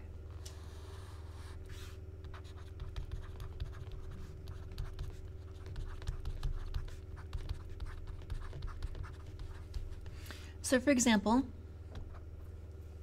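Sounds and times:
steady low hum: 0:00.0 - 0:13.0
stylus scratching on a tablet: 0:00.7 - 0:10.2.

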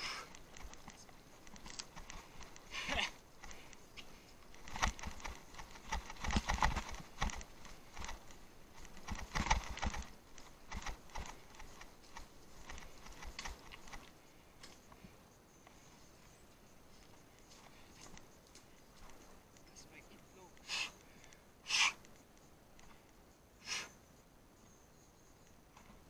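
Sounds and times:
bicycle clattering over rough ground: 0:00.3 - 0:14.8.

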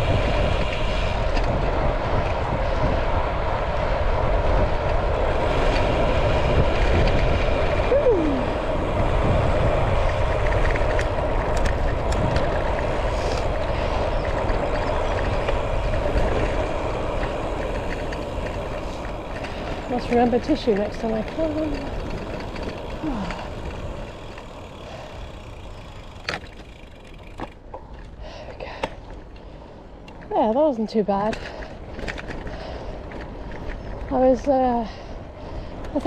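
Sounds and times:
wind on microphone: 0:00.0 - 0:26.1
bike tyres on road: 0:00.0 - 0:36.0.

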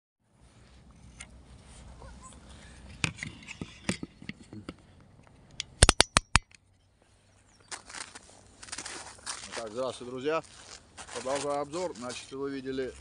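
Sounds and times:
sharp clicks: 0:05.5 - 0:06.6.

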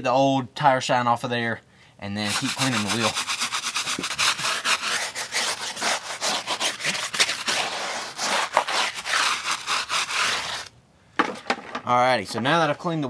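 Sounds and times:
brush scrubbing wet tire: 0:02.2 - 0:10.7.

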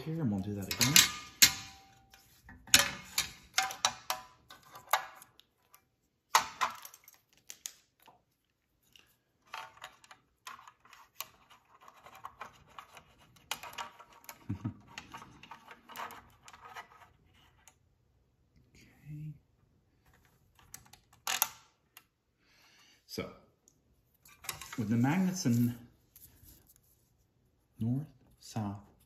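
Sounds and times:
sharp clicks and knocks of metal toys: 0:00.5 - 0:08.0.

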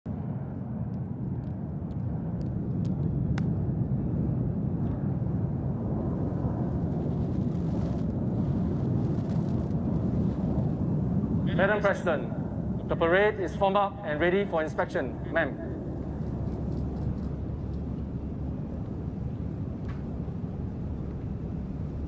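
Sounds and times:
low outdoor rumble: 0:00.1 - 0:22.0.

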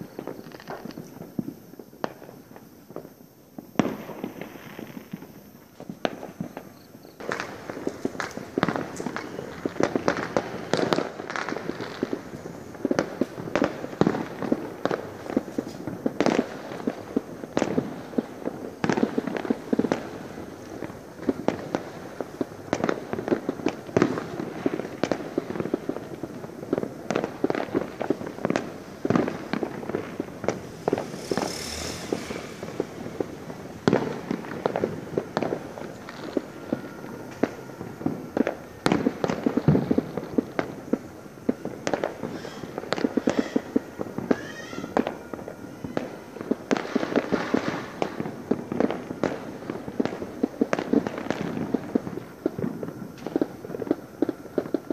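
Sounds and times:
fireworks and firecrackers banging: 0:00.0 - 0:54.9
short hiss: 0:30.6 - 0:33.1.

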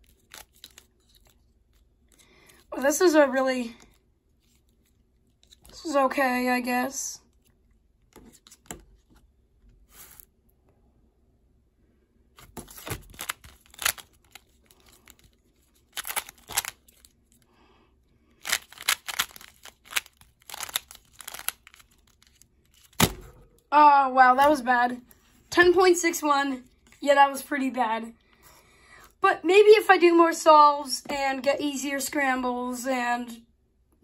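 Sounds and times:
puzzle cube plastic clacking: 0:12.7 - 0:15.3, 0:15.9 - 0:17.0, 0:18.4 - 0:23.0.

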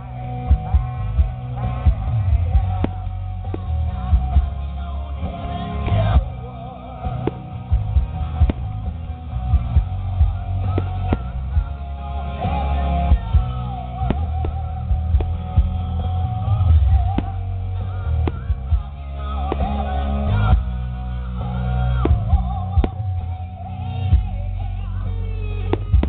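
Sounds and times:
guitar: 0:00.0 - 0:26.0
heavy bass: 0:00.0 - 0:26.0
rock music: 0:00.0 - 0:26.0
person singing: 0:09.8 - 0:26.0.

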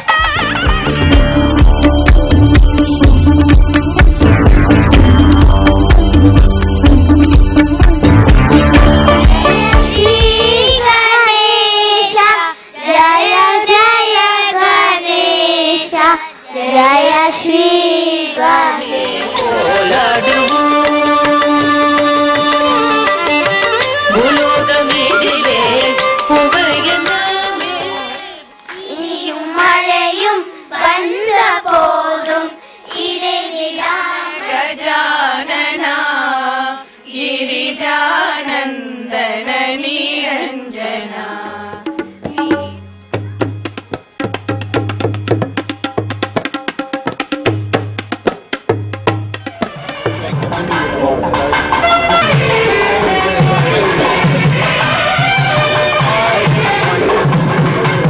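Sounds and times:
person singing ornamented melody: 0:16.7 - 0:23.4, 0:24.1 - 0:29.6.

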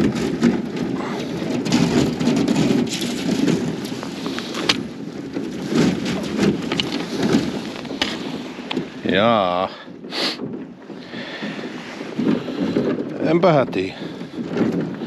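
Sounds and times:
ice scraping along boat hull: 0:00.0 - 0:15.0
thin ice cracking and crunching: 0:00.2 - 0:09.2.

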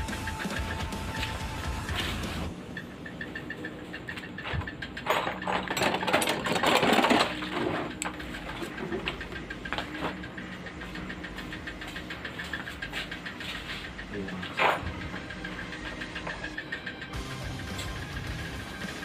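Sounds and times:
motorcycle engine idling: 0:07.3 - 0:19.0.

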